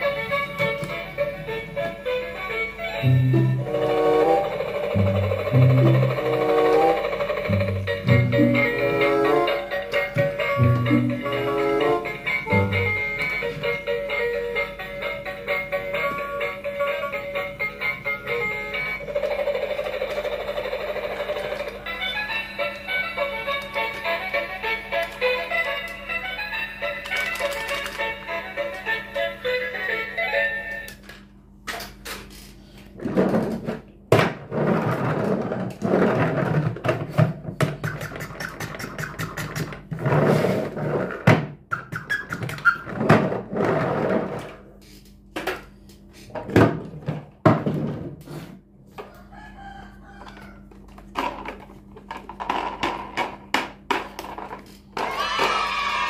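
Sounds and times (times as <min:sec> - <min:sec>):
toy trains clicking and knocking: 0:04.3 - 0:10.9, 0:13.7 - 0:29.4, 0:36.8 - 0:39.9, 0:50.2 - 0:55.7.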